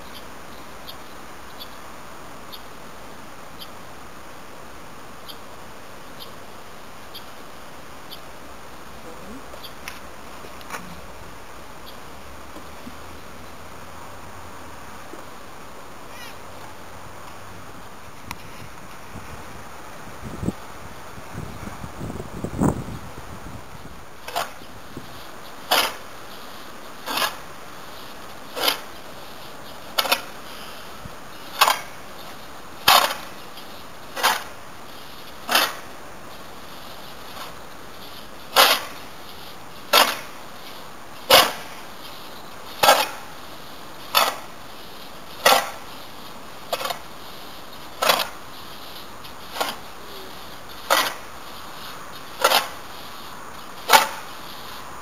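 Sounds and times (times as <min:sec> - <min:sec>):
shovel scraping loose substrate: 0:24.2 - 0:36.0, 0:36.6 - 0:54.9.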